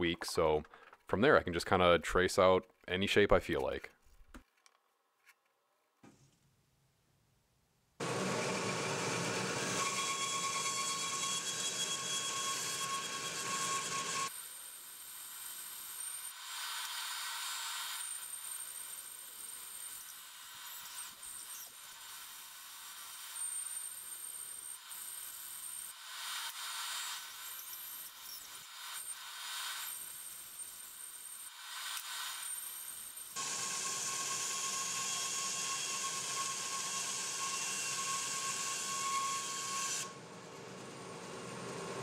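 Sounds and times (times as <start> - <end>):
bandsaw cutting wood: 8.0 - 40.2.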